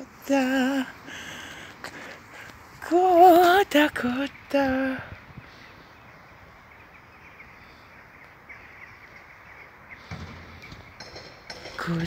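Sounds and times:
faint outdoor background noise: 0:00.0 - 0:12.0
faint bird chirps: 0:04.0 - 0:11.2.

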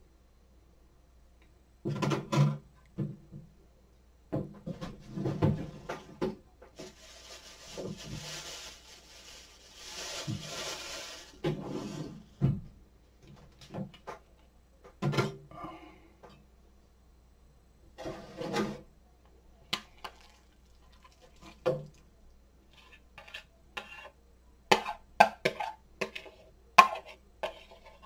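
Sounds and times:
steady hiss: 0:06.8 - 0:12.2.

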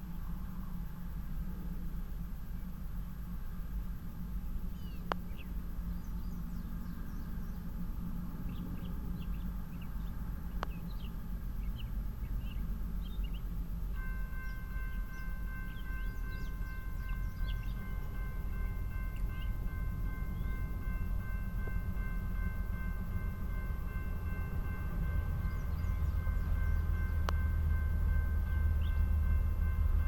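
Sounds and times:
steady low rumble: 0:00.0 - 0:30.0
railroad crossing warning bell: 0:13.4 - 0:30.0
birds chirping: 0:14.4 - 0:18.2.

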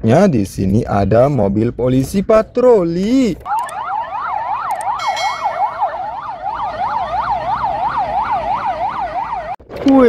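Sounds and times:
police sirens yelping: 0:03.4 - 0:09.6.

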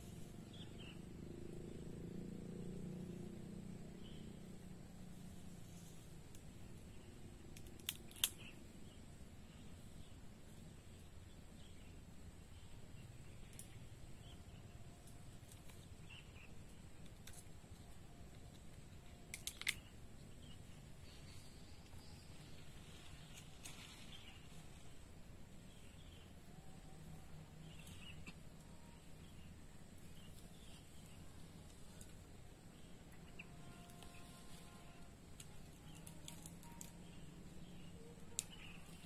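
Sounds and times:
sharp snap: 0:07.5 - 0:08.6
bird chirps: 0:35.8 - 0:39.0.

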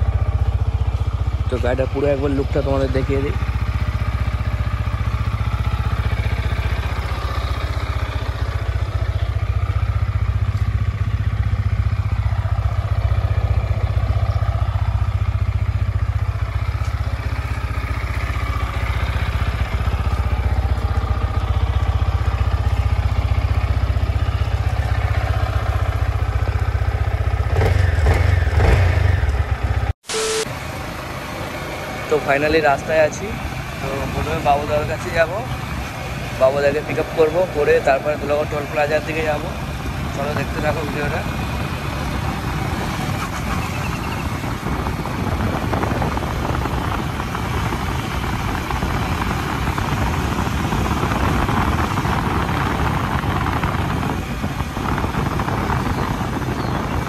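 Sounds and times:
motorcycle engine idling: 0:00.0 - 0:30.0, 0:30.6 - 0:57.0.

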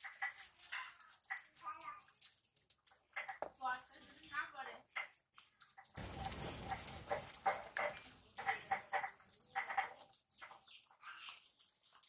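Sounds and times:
animal calling: 0:05.8 - 0:10.7.

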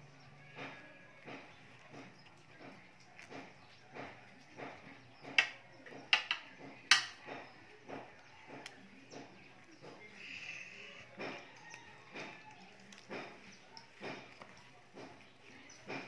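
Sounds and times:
banana leaves rustling and crackling: 0:07.6 - 0:16.0.

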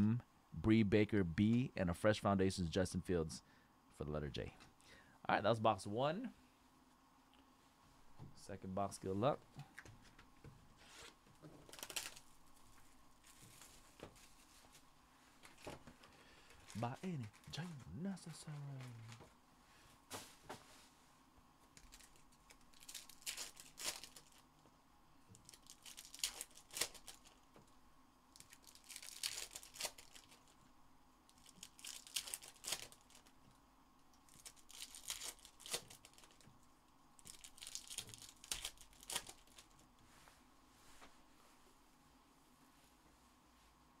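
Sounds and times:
foil wrappers crinkling and tearing: 0:11.0 - 0:12.3, 0:21.8 - 0:24.5, 0:25.4 - 0:27.5, 0:28.3 - 0:30.6, 0:31.3 - 0:33.4, 0:34.3 - 0:36.5, 0:37.2 - 0:39.8.

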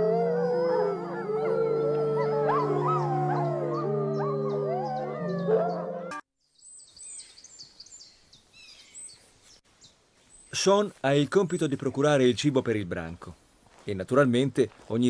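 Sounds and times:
wolves howling: 0:00.0 - 0:06.1
faint birdsong: 0:00.2 - 0:12.2.

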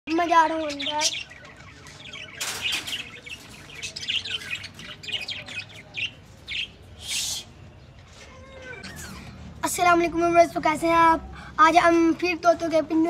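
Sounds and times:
parrots chirping and tweeting: 0:00.1 - 0:13.0.

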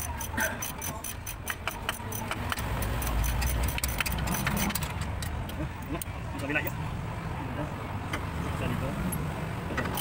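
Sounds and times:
wrench clicking on metal: 0:00.0 - 0:06.8.

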